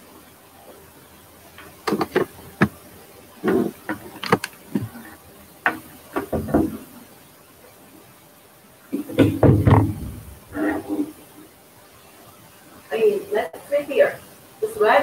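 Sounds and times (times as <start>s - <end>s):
laptop clicks and taps: 3.9s - 4.9s.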